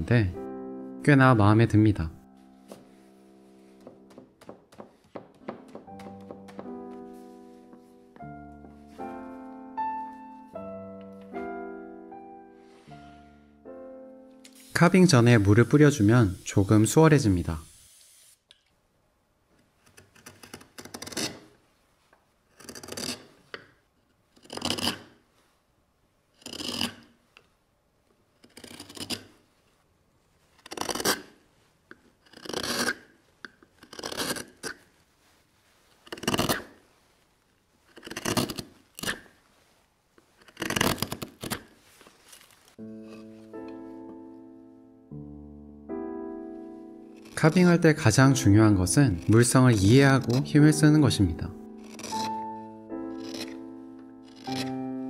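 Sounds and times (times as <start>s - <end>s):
gouge shaving wood: 26.4s - 27.0s, 28.4s - 29.4s, 30.6s - 31.4s, 32.2s - 33.1s, 33.7s - 34.8s, 36.0s - 36.8s, 37.9s - 39.3s, 40.4s - 41.7s, 47.1s - 53.6s, 54.2s - 54.9s.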